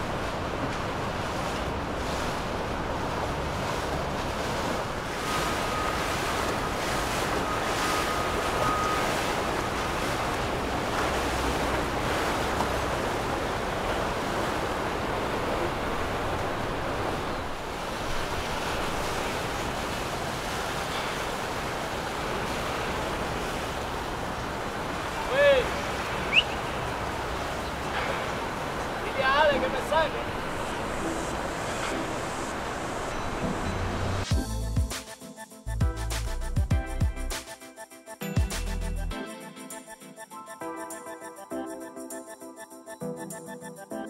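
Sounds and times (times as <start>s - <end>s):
water washing: 0.0s - 34.4s.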